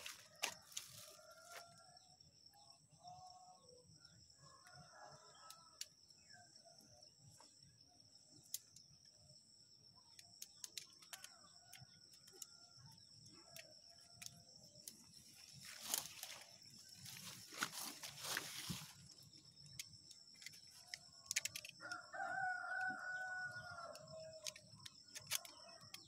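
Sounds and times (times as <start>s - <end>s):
leaves rustling: 0.0s - 1.6s, 15.4s - 19.2s
distant rooster crowing: 0.0s - 2.2s, 21.8s - 24.6s.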